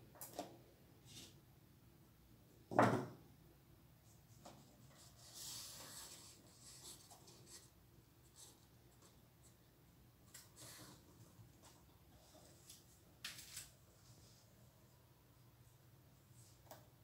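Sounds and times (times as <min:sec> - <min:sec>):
paper rustling and rubbing: 0:04.4 - 0:09.1.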